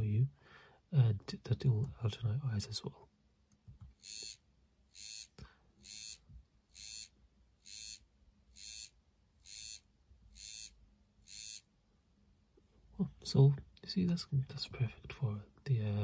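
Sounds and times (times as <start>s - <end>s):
vibration motor buzzing in pulses: 4.0s - 11.6s.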